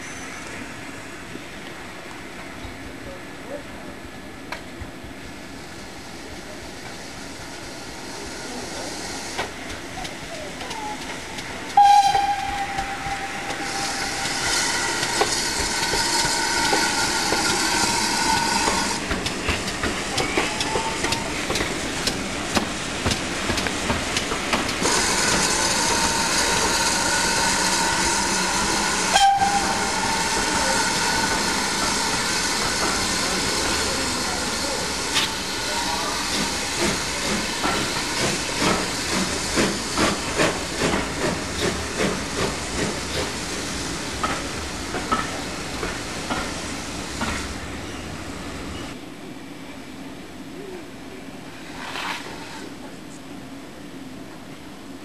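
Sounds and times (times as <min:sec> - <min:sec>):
steam locomotive passing: 0:00.0 - 0:54.8
steam whistle: 0:11.7 - 0:19.0, 0:24.8 - 0:34.0.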